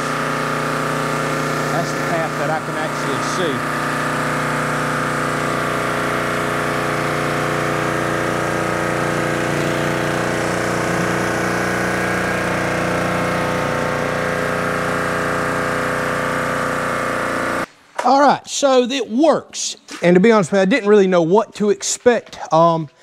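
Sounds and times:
pressure washer engine running: 0:00.0 - 0:17.7.

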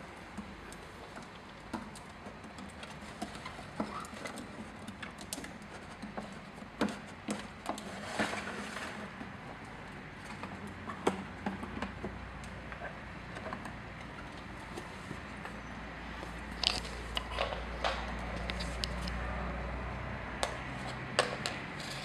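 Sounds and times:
rustling scrape: 0:07.8 - 0:09.2, 0:16.2 - 0:19.2, 0:21.7 - 0:22.0.

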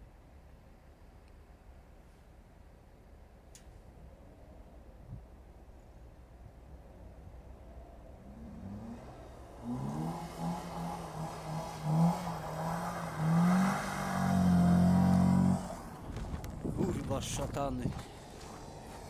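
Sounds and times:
car engine revving: 0:08.2 - 0:16.6.

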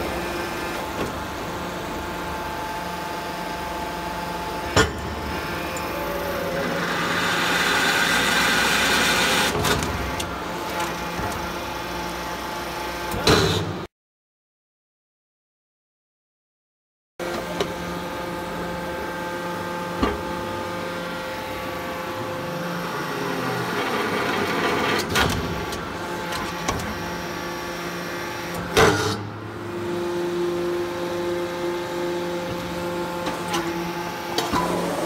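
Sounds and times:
hydraulic press hum: 0:17.2 - 0:35.0.

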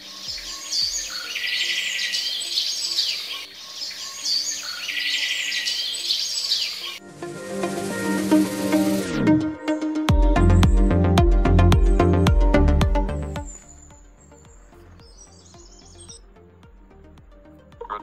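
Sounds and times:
birds chirping and singing: 0:00.0 - 0:07.0, 0:13.2 - 0:16.3
electronic music: 0:07.0 - 0:18.0
deep beat: 0:10.1 - 0:18.0.

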